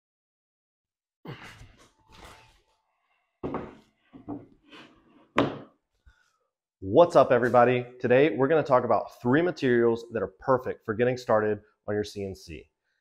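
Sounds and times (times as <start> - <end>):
knocks and thuds: 3.4 - 4.4
footsteps: 7.0 - 7.8.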